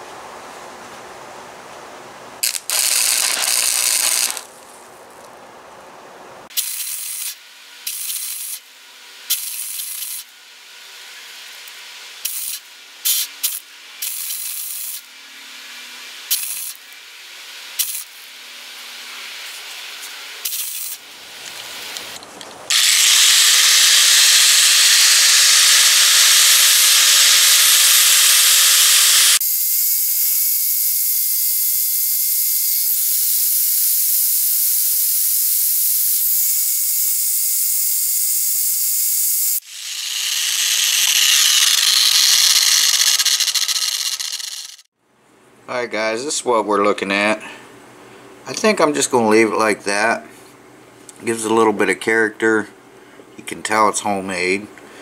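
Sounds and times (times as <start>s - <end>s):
angle grinder whining: 2.4s - 4.5s, 22.7s - 29.4s, 39.5s - 44.9s
welder sizzling bursts: 2.4s - 4.5s, 6.5s - 8.7s, 9.3s - 10.3s, 12.2s - 15.0s, 16.3s - 16.8s, 17.7s - 18.2s, 20.4s - 21.0s, 22.7s - 44.9s.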